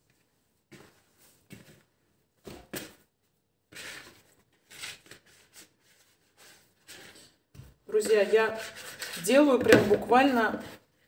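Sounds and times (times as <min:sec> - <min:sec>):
plastic bowl rustling and scraping: 0:03.7 - 0:10.9.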